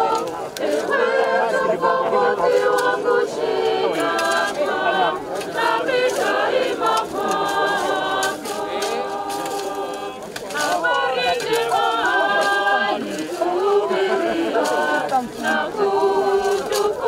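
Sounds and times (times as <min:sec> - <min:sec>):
choir singing: 0:00.0 - 0:17.0.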